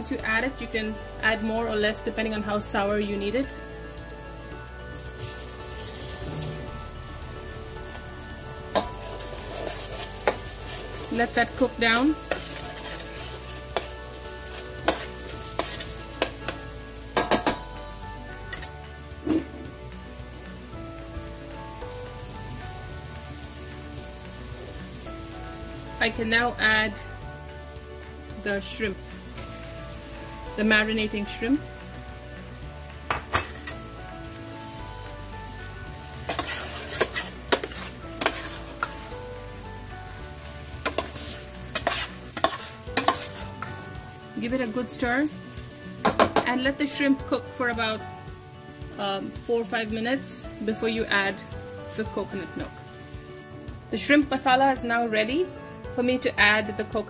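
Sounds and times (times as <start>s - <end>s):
paste sizzling in a pot: 0.1s - 55.5s
spoon scraping metal pot: 8.7s - 11.2s, 11.9s - 16.6s, 36.2s - 39.0s, 40.8s - 43.7s.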